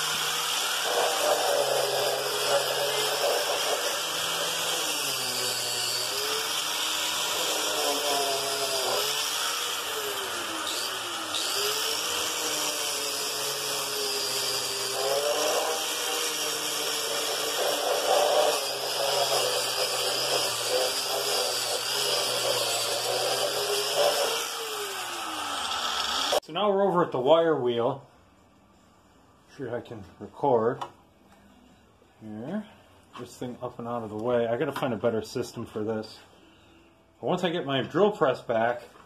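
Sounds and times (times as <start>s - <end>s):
wire brush grinding rusty metal: 0.0s - 24.6s.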